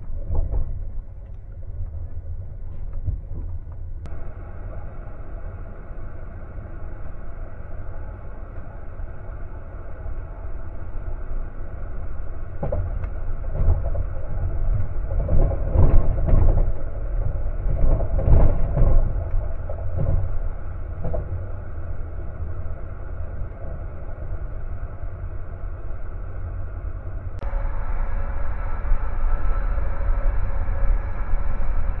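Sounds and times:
train rumbling on rails: 0:00.0 - 0:32.0
train wheels clacking and thumping: 0:12.6 - 0:21.6.

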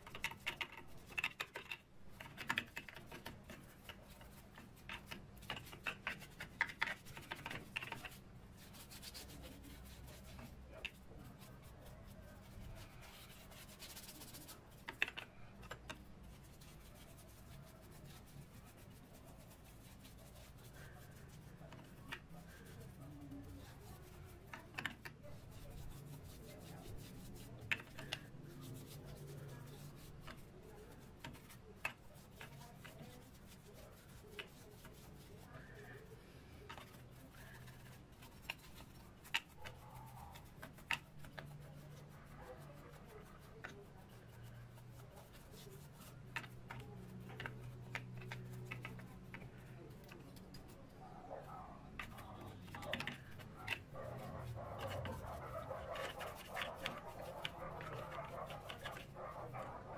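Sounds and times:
brush clicking against gears: 0:00.0 - 0:09.4, 0:51.9 - 0:59.9
small brush scrubbing metal: 0:00.0 - 0:59.9
faint low murmur: 0:01.9 - 0:59.9.

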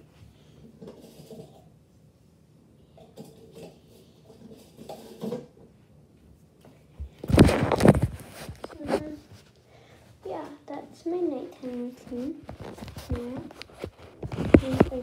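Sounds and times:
clinks and rustles of small items: 0:00.7 - 0:01.7, 0:03.0 - 0:05.6
phone microphone handling noise: 0:07.1 - 0:09.2.

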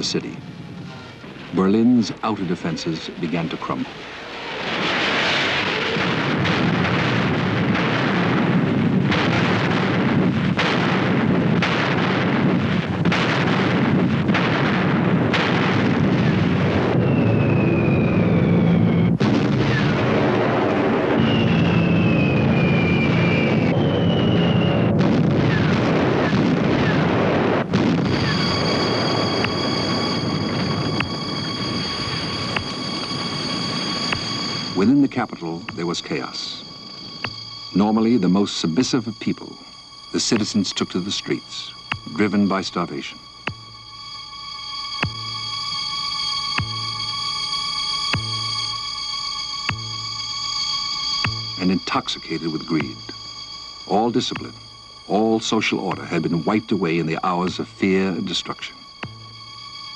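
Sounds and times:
heavy blasts: 0:00.0 - 0:59.9
whistles falling in pitch: 0:16.2 - 0:20.0, 0:20.8 - 0:27.1, 0:28.0 - 0:59.9
steady high tone: 0:19.9 - 0:59.9.

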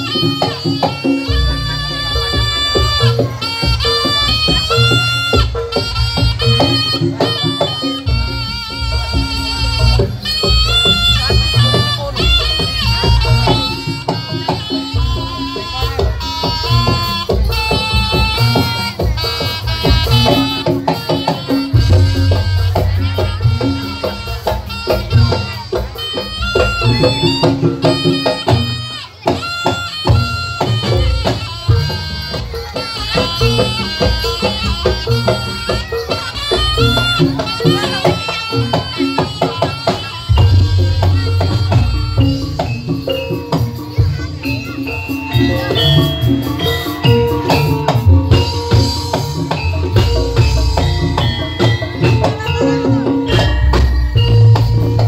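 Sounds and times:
shrill reedy horn melody: 0:00.0 - 0:55.0
steady drumming: 0:00.0 - 0:55.0
held pitched notes: 0:40.0 - 0:44.4
deep bass: 0:40.3 - 0:43.0.

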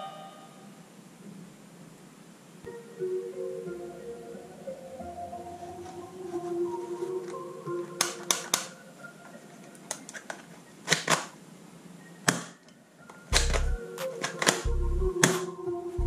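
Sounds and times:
soft background music: 0:02.7 - 0:10.9, 0:11.8 - 0:16.0
toy pistol plastic clicks: 0:10.9 - 0:11.3.

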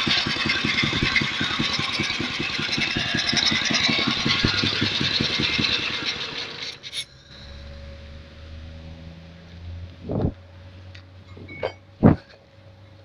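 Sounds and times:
small petrol engine running: 0:00.0 - 0:08.7.

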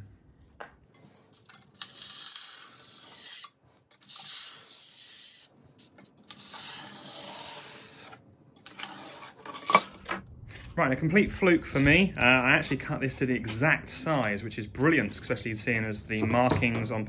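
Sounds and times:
utility knife cutting foam board: 0:01.6 - 0:05.5, 0:06.2 - 0:09.9.

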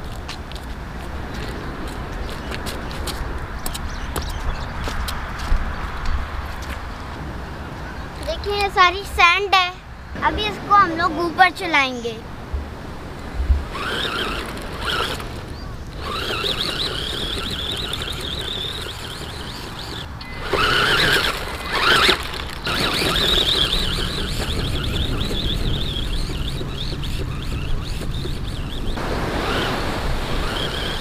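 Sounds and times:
toy car electric motor whining: 0:13.7 - 0:31.0.

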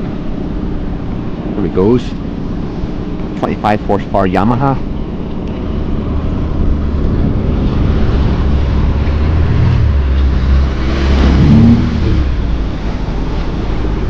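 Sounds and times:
outboard motors running: 0:00.0 - 0:14.0
water rushing past hull: 0:00.0 - 0:14.0
wind rushing: 0:05.6 - 0:14.0.

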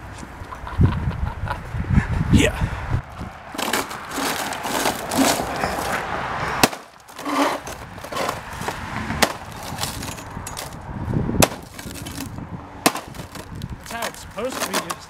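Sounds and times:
garden fork crunching tv screen: 0:03.5 - 0:05.9, 0:12.9 - 0:15.0.

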